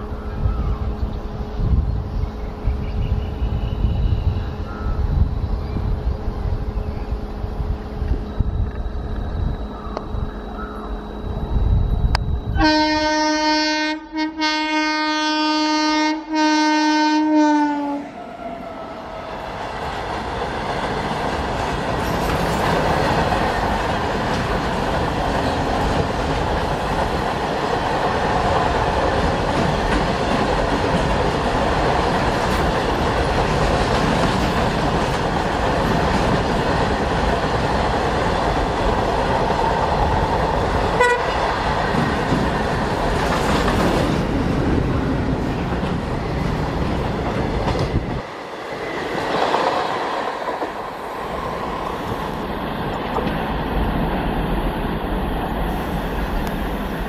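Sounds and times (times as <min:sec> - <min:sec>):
train horn blasts: 0:02.8 - 0:04.6, 0:12.5 - 0:19.2, 0:41.0 - 0:41.4
train wheels rumbling and clattering: 0:19.0 - 0:57.0.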